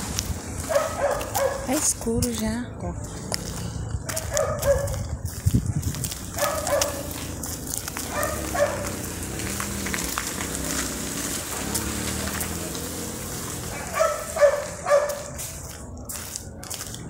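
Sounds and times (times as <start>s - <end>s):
dog barking: 0.7s - 1.8s, 4.1s - 5.1s, 6.4s - 7.3s, 8.0s - 9.1s, 13.7s - 15.3s
crackling rustle: 3.0s - 17.0s.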